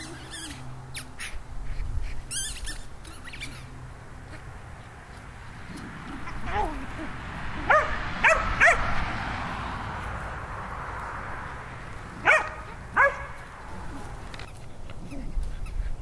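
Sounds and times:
dog barking: 7.7s - 8.9s, 12.2s - 13.4s.

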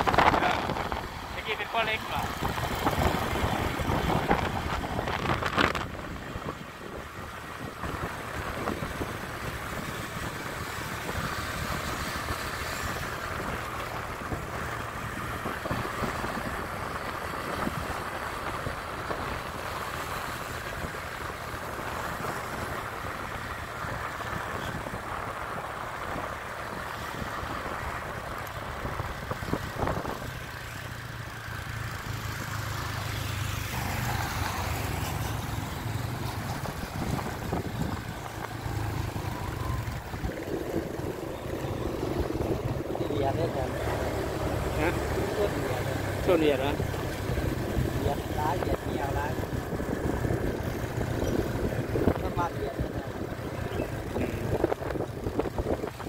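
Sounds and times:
wind noise on microphone: 0.0s - 1.2s, 2.3s - 12.2s, 23.1s - 30.4s, 36.2s - 42.9s, 47.3s - 56.0s
road noise: 0.0s - 56.0s.

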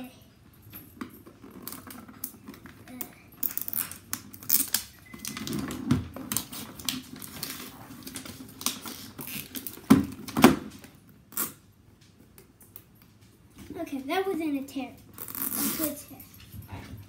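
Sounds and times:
packaging tearing and crackling: 3.4s - 5.5s, 6.3s - 10.4s.

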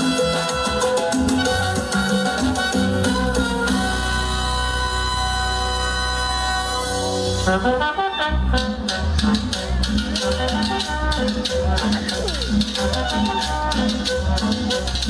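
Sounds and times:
percussion and bass beat: 0.0s - 7.6s, 8.3s - 15.0s
horn section chord: 0.0s - 9.4s
salsa music over sound system: 0.0s - 15.0s.

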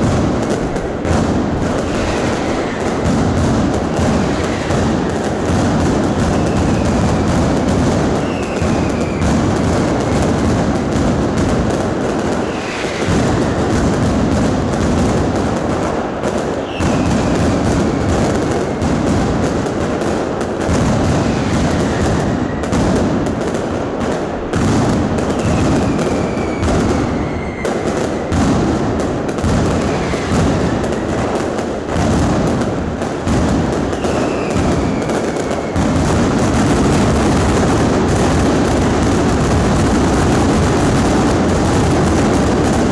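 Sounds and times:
fireworks bangs and crackle: 0.0s - 42.9s
firework whistle falling: 1.6s - 5.4s, 6.0s - 10.8s, 12.2s - 13.8s, 16.5s - 19.0s, 25.2s - 28.4s, 29.7s - 31.3s, 33.8s - 38.1s.

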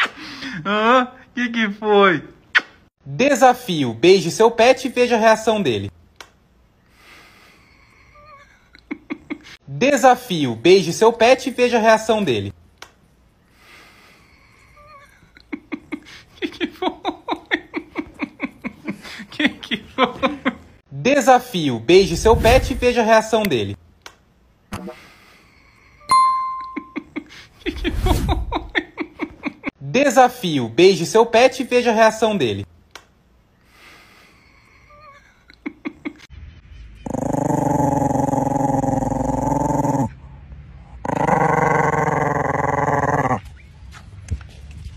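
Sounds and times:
woman laughing: 8.2s - 9.6s, 15.3s - 20.8s, 26.6s - 29.7s, 35.0s - 36.3s
dog growling: 37.0s - 40.2s, 41.0s - 43.4s.

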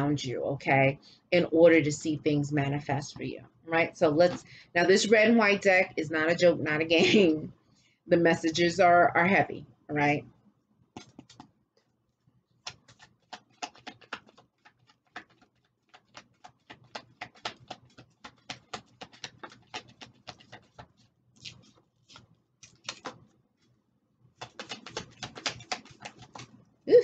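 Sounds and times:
cards being shuffled: 10.9s - 11.6s, 12.5s - 23.7s, 24.4s - 26.6s.

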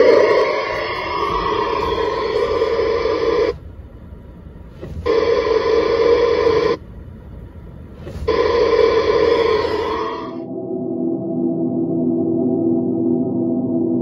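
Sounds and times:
radio speaker buzzing: 0.0s - 10.5s.

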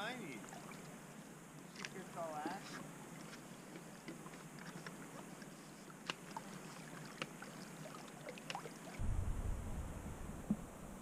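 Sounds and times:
water lapping against rocks: 1.7s - 9.0s
small clicks and drips: 2.6s - 9.0s
low rumble: 9.0s - 11.0s.

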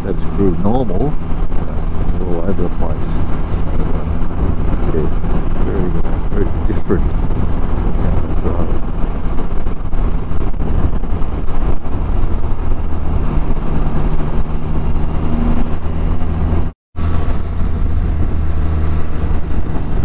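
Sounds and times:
engine running at road speed: 0.0s - 20.0s
road and air noise: 0.0s - 20.0s.

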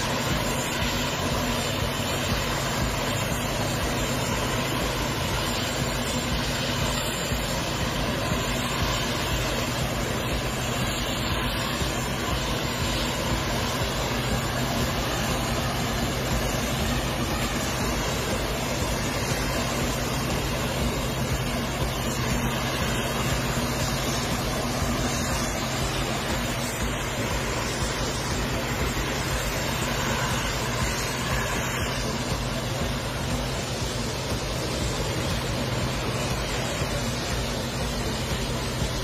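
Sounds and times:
harvester rushing noise: 0.0s - 39.0s
low engine hum: 0.0s - 39.0s.

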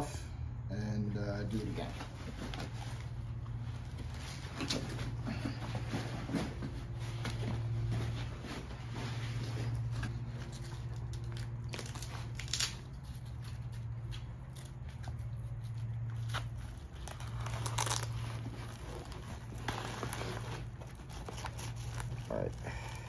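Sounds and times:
steady low hum: 0.0s - 23.0s
fabric and straps rustling: 1.6s - 23.0s
velcro ripping apart: 10.4s - 23.0s.

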